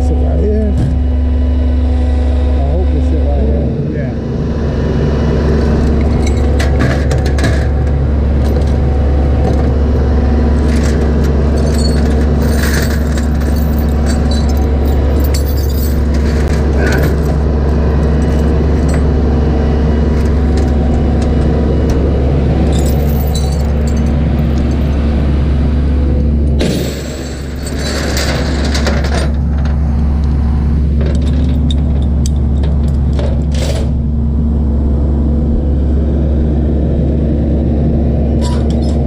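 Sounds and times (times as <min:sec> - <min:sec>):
truck engine droning: 0:00.0 - 0:39.0
metallic rattles and jingles: 0:10.5 - 0:19.2, 0:20.0 - 0:25.3, 0:26.6 - 0:29.9, 0:30.9 - 0:34.0.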